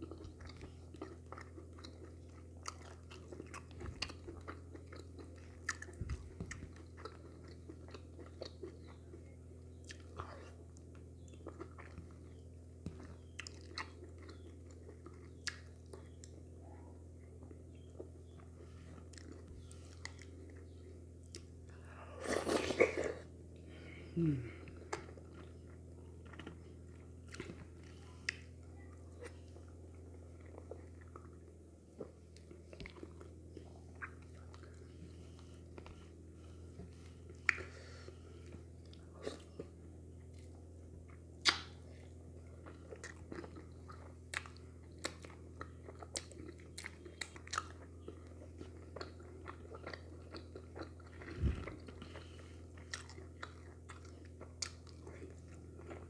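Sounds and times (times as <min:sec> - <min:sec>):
wet chewing: 0:00.0 - 0:16.4, 0:24.7 - 0:56.0
steady low hum: 0:00.0 - 0:56.0
mouth clicks and smacks: 0:41.4 - 0:41.8.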